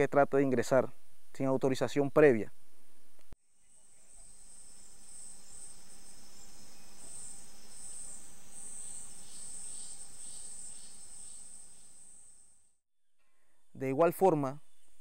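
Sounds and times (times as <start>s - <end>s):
insects trilling: 3.5s - 12.6s.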